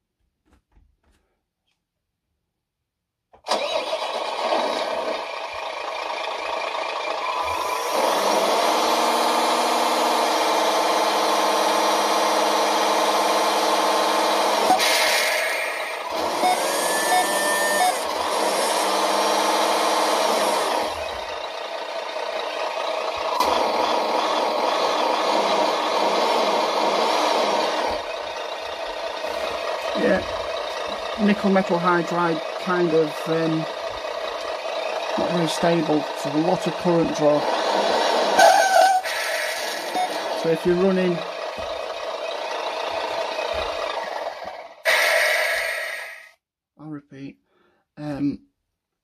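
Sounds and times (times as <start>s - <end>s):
simulated truck engine from speaker: 3.4s - 47.1s
short hiss: 44.9s - 46.3s.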